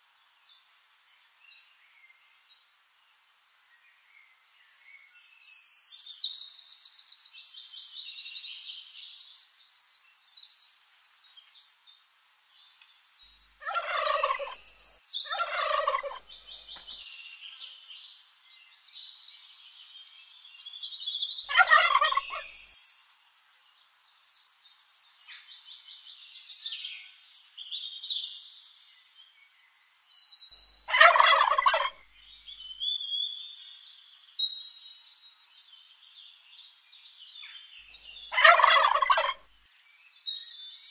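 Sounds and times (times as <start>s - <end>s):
high bird chirping: 13.3s - 17.0s, 21.4s - 22.8s, 30.6s - 33.0s, 37.9s - 39.4s
turkeys gobbling: 13.6s - 14.7s, 15.3s - 16.2s, 21.5s - 22.5s, 30.9s - 32.0s, 38.3s - 39.4s.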